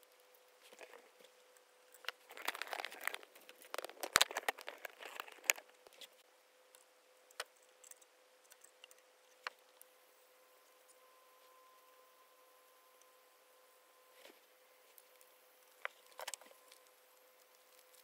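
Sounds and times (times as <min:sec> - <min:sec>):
rustling and crinkling: 0:00.0 - 0:06.3, 0:14.1 - 0:18.0
faint steady hum: 0:00.0 - 0:18.0.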